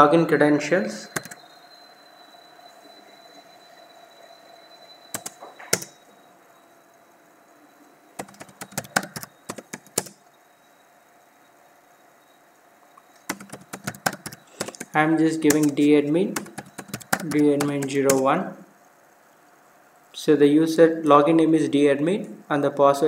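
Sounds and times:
faint high-pitched electrical whine: 0.0s - 23.0s
computer keyboard keys clicking: 1.1s - 1.4s, 5.1s - 5.9s, 8.2s - 10.2s, 13.2s - 18.2s.

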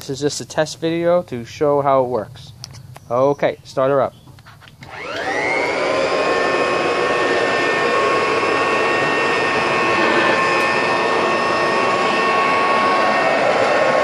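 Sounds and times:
vacuum cleaner motor whine: 4.8s - 14.0s.

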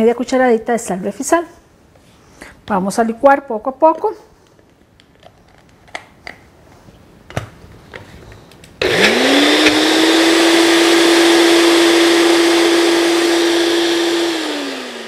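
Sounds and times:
blender motor whine: 8.8s - 15.0s.

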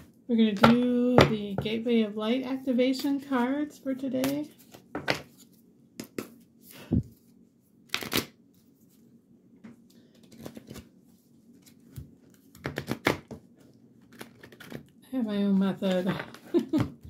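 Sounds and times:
cards being shuffled: 4.2s - 8.7s, 10.1s - 13.4s, 14.0s - 14.9s.

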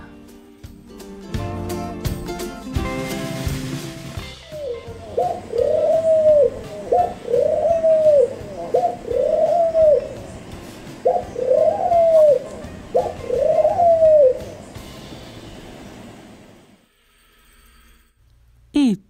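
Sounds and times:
dove cooing: 4.6s - 14.6s.

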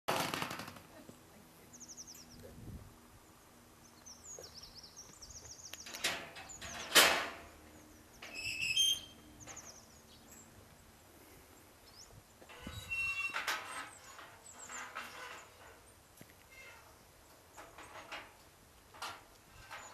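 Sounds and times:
songbirds chirping: 0.9s - 19.9s
high squeak: 8.3s - 9.3s, 12.5s - 14.0s.

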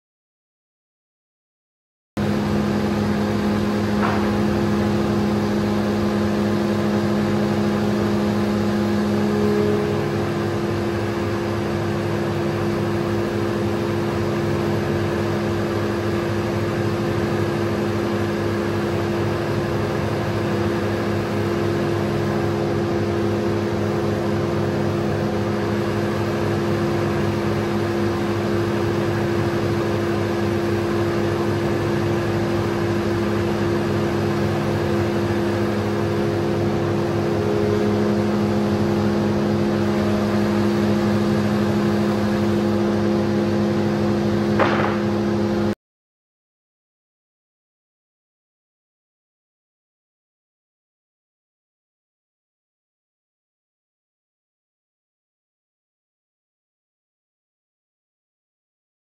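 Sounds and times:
spindle moulder machine hum: 2.2s - 45.8s.

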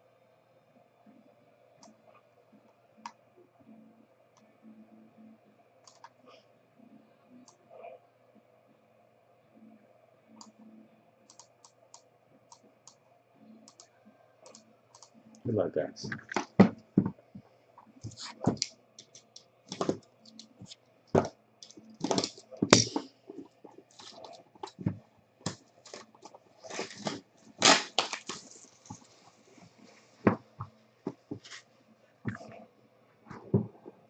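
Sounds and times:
plastic wrapper crackling: 25.8s - 29.2s.

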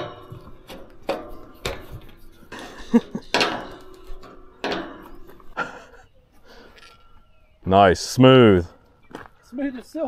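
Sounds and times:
metal gate clanking on hinges: 0.0s - 5.9s.

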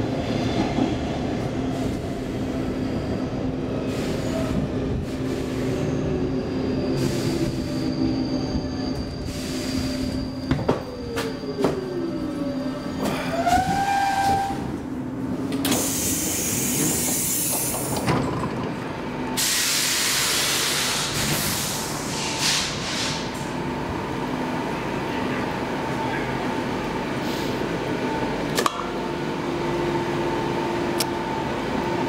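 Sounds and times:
compressed air hiss: 15.7s - 17.5s, 19.4s - 23.3s.

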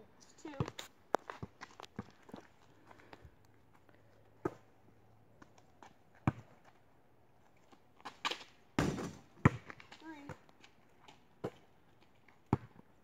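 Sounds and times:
basketball bouncing on asphalt: 0.4s - 2.6s, 4.4s - 4.8s, 5.4s - 6.8s, 8.0s - 13.0s.

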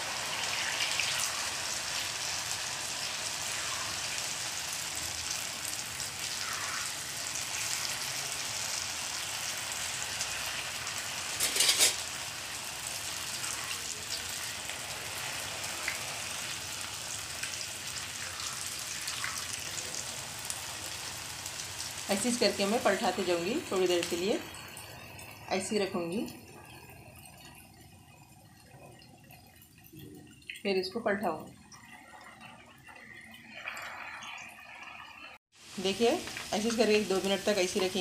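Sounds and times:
deep-frying bubbling sizzle: 0.0s - 38.0s.

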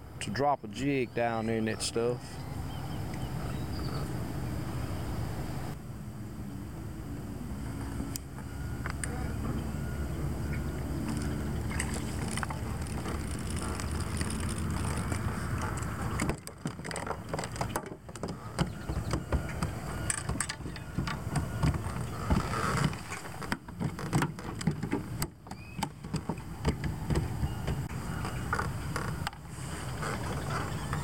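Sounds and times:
boat knocks and clicks: 10.5s - 31.0s.

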